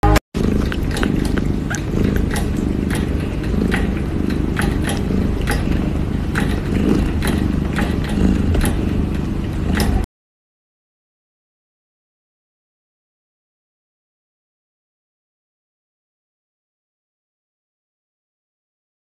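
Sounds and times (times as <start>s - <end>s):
kitten purring: 0.0s - 10.1s
kitten sucking on paw clicks: 0.4s - 10.1s.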